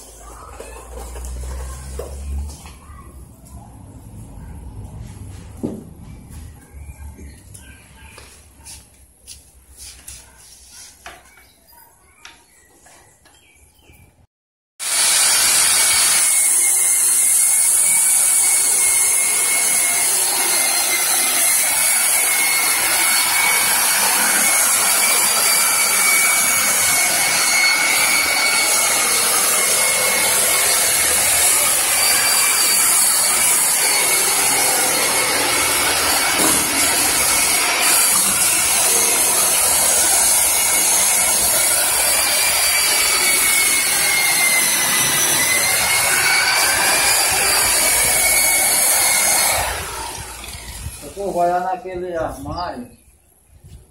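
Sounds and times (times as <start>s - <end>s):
power sander on wood: 14.8s - 52.0s.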